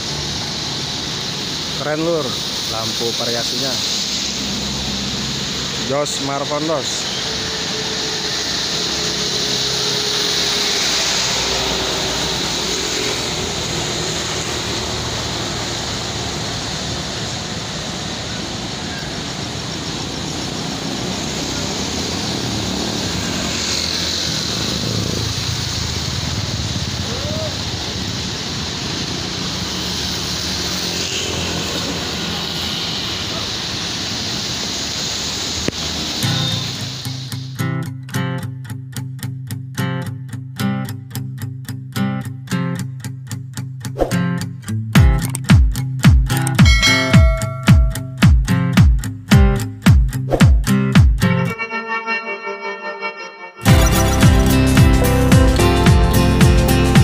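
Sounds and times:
bus engine idling: 0.0s - 37.5s, 53.7s - 57.0s
strong hiss: 0.0s - 37.6s.

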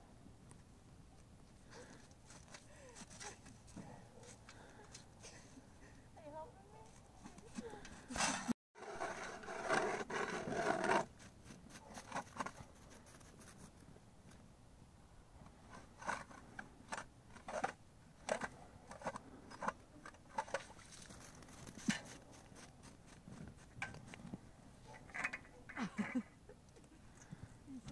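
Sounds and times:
ice auger scraping ice: 8.1s - 12.6s.

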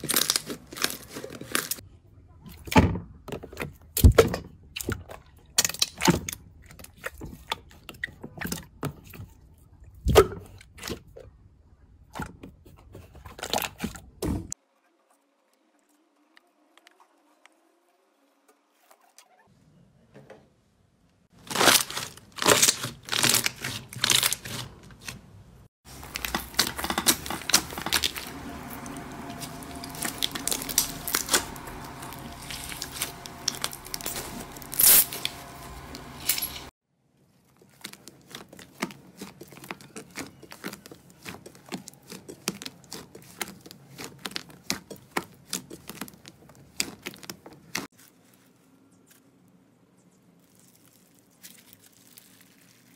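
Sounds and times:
slime crackling and popping: 25.9s - 36.1s.

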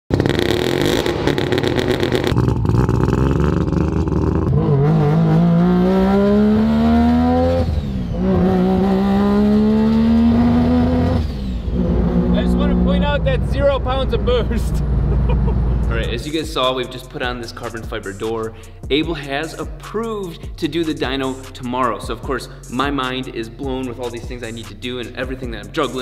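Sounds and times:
rotary engine revving: 0.1s - 16.1s.

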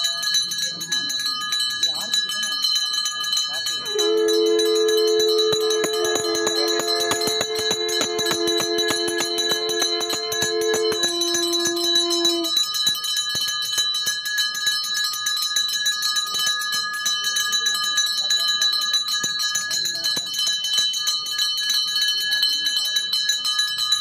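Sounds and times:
steady held tones: 0.0s - 22.7s
hand bell rung rapidly: 0.0s - 24.0s.

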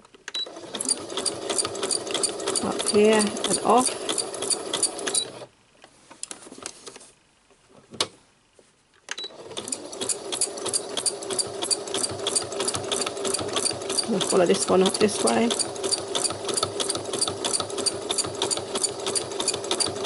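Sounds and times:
sewing machine stitching: 0.4s - 5.5s, 9.2s - 20.0s.

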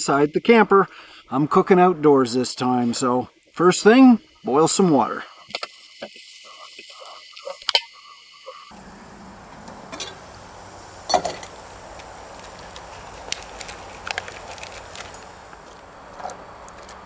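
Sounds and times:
gas burner hissing: 3.9s - 17.0s
boiling water: 5.5s - 17.0s
enamel lid clanking: 11.0s - 13.4s.

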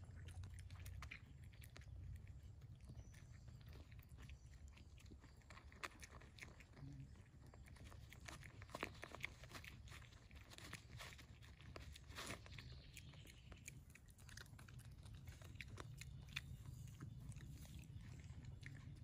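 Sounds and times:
pig chewing and crunching: 0.0s - 19.0s.

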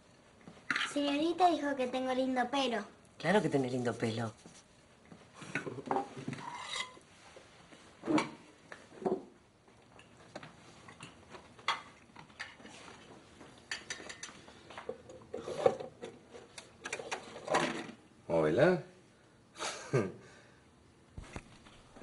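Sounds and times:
dishes and cutlery clinking: 13.6s - 16.2s.

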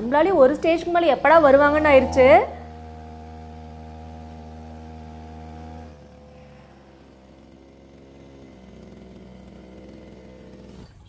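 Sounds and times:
small outboard motor running: 0.0s - 11.0s.

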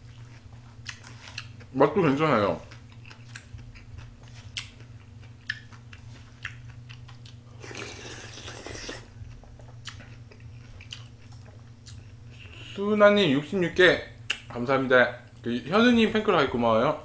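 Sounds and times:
person chewing soup: 0.0s - 1.7s, 2.6s - 12.8s.

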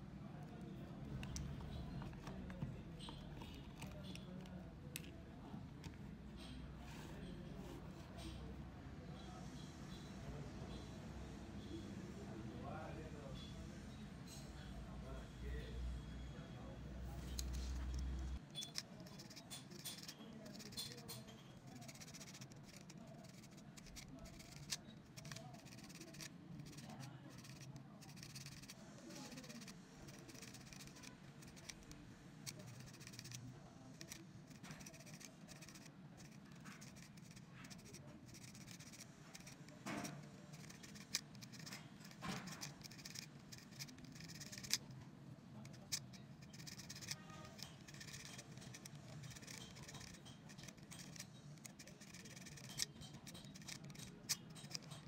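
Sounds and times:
abrasive paper scratching metal: 17.2s - 44.9s, 45.6s - 55.0s
small clicks and ticks: 17.3s - 45.0s, 45.6s - 55.0s.

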